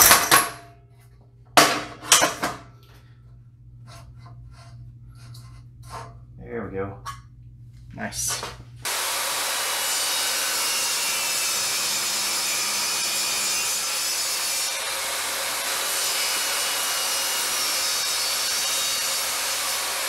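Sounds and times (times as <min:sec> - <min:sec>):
table saw cutting wood: 0:08.8 - 0:20.0.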